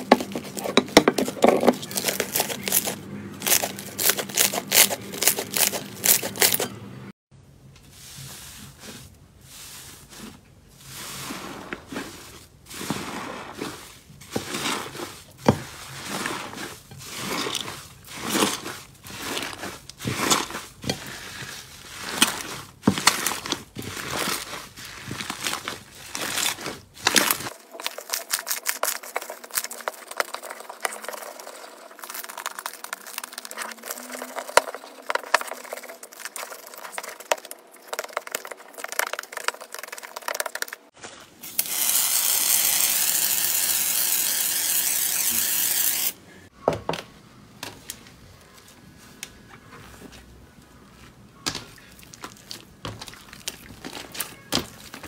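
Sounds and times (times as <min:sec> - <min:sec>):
slime squishing: 0:00.0 - 0:06.7, 0:09.7 - 0:41.4, 0:49.7 - 0:55.0
slime crackling on glass: 0:14.3 - 0:41.7, 0:51.4 - 0:55.0.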